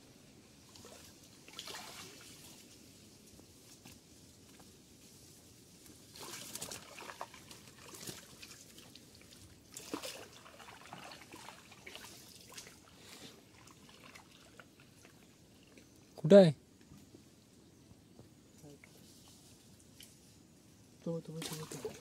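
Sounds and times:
water splashing and trickling: 0:00.5 - 0:03.8, 0:06.0 - 0:16.2, 0:21.1 - 0:22.0.

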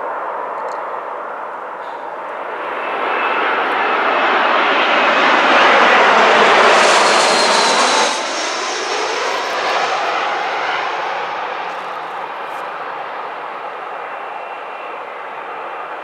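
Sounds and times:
jet engine roar: 0:00.0 - 0:16.0.

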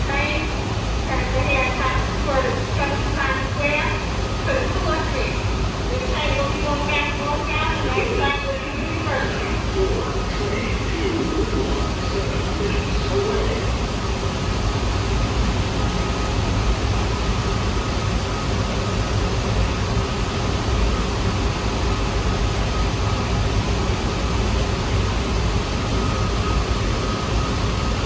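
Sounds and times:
faint steady tones: 0:00.0 - 0:19.8
subway train rumble and hiss: 0:00.0 - 0:28.0.

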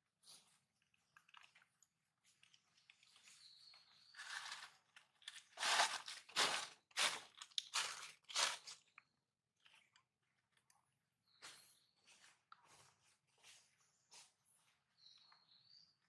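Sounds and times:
rustling: 0:02.3 - 0:08.8
loud crunches: 0:04.2 - 0:08.9.

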